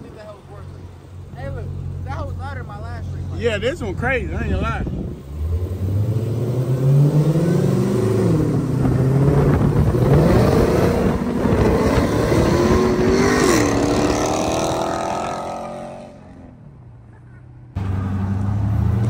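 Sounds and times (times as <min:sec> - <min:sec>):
car engine accelerating hard: 0:04.9 - 0:16.4.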